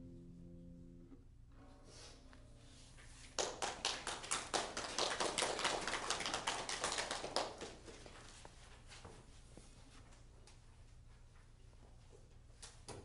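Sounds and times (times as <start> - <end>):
small audience applauding: 3.4 - 8.4.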